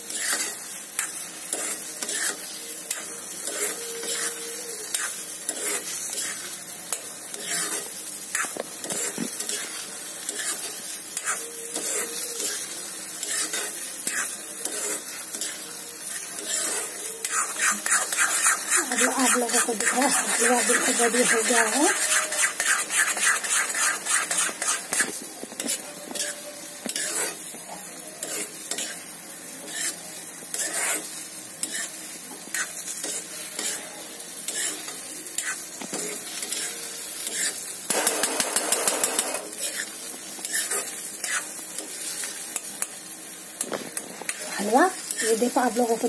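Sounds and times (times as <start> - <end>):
ghee sizzling: 0.0 - 46.0
spoon stirring and scraping pan: 0.0 - 46.0.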